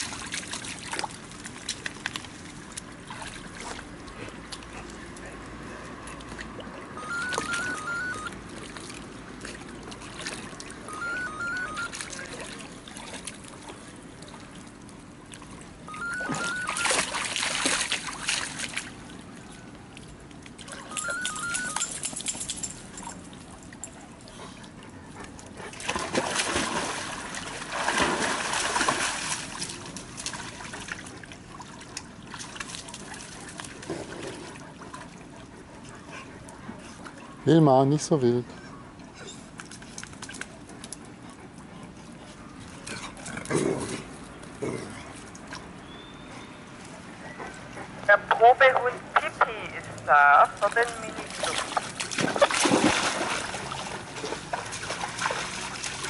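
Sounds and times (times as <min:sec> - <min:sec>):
water splashing and spraying: 0:00.0 - 0:10.9, 0:16.2 - 0:20.4, 0:25.7 - 0:34.6, 0:48.1 - 0:56.0.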